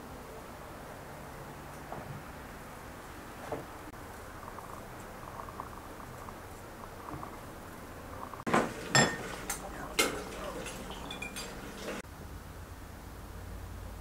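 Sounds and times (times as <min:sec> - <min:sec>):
dishware clinking and knocking: 0:08.5 - 0:12.0.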